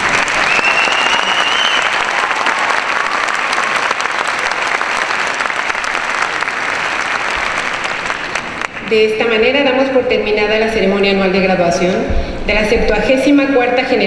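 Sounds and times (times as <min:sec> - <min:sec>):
audience applauding: 0:00.0 - 0:08.9
rising whistle: 0:00.3 - 0:02.1.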